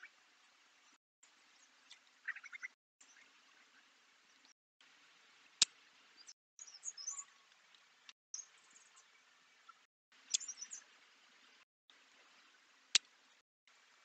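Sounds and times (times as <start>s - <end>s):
wild birds chirping and twittering: 0.0s - 13.4s
faint steady hiss: 3.0s - 14.0s.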